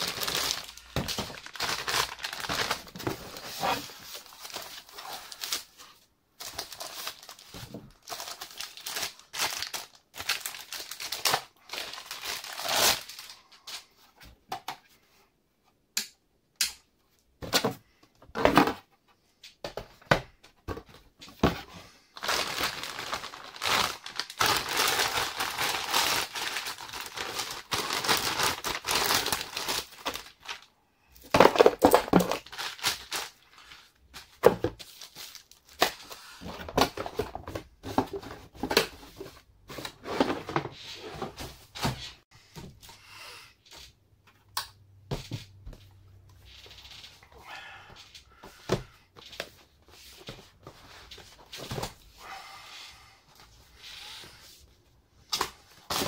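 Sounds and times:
plastic bags crinkling: 0.0s - 5.8s, 6.4s - 13.5s, 22.2s - 34.0s.

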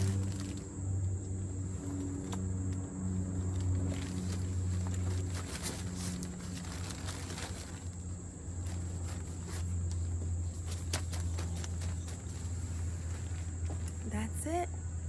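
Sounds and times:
low hum: 0.0s - 15.0s
rustling of packing a tote bag: 3.4s - 14.0s.

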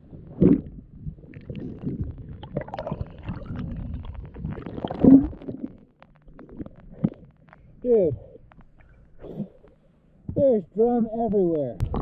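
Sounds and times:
muffled underwater rumbling: 0.0s - 10.5s, 11.8s - 12.0s
bubbles rising: 0.3s - 7.2s.

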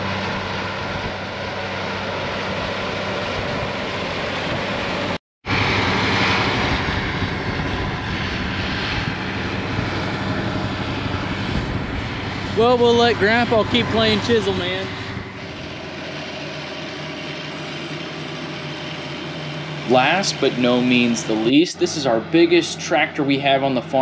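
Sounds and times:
tractor diesel engine under load: 9.2s - 24.0s.

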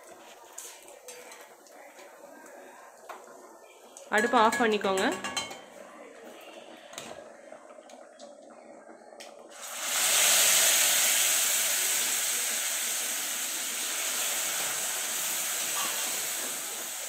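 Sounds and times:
hot oil sizzling loudly: 9.5s - 17.0s.

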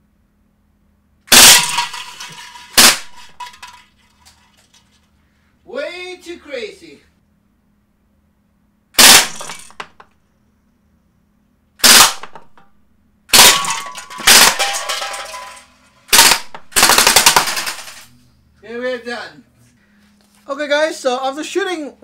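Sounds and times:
bb gun firing bursts: 1.3s - 3.4s, 9.0s - 10.0s, 11.8s - 12.6s, 13.3s - 14.9s, 16.1s - 18.1s
bbs clanking on metal cans: 1.3s - 4.9s.

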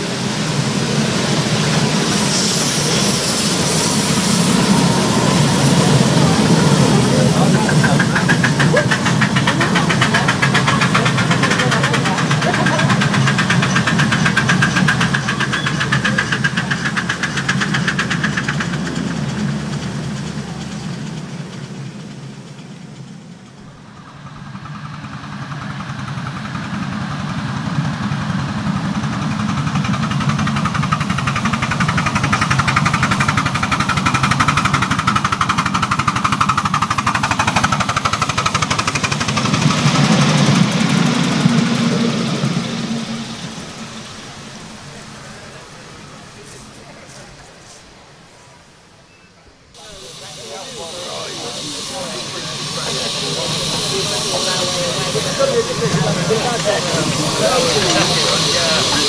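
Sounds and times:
steam train exhaust beats: 0.0s - 49.2s, 49.8s - 59.0s
train wheel clatter: 0.0s - 49.2s, 49.8s - 59.0s.

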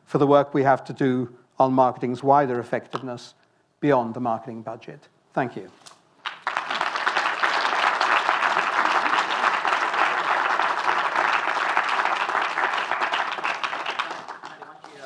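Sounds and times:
audience applauding: 6.2s - 15.0s.

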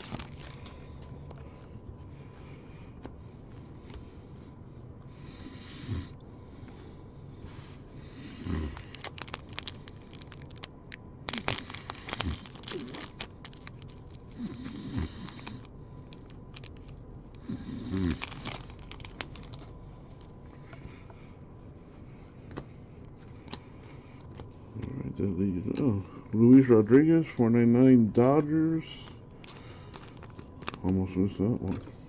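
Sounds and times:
foil wrapper crinkling and tearing: 0.0s - 0.9s, 8.2s - 20.3s, 29.0s - 30.9s.

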